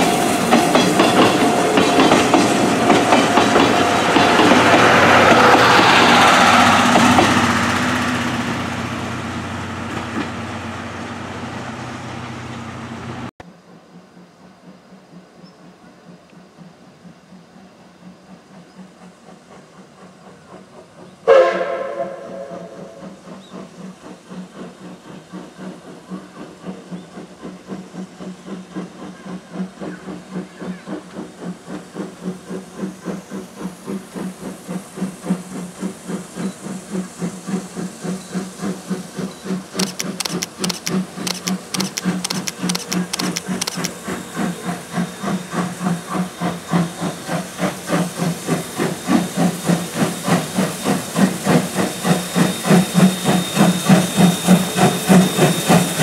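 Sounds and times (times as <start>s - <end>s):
steam locomotive exhaust chuffing: 0.0s - 56.0s
steam whistle blast: 21.2s - 23.1s.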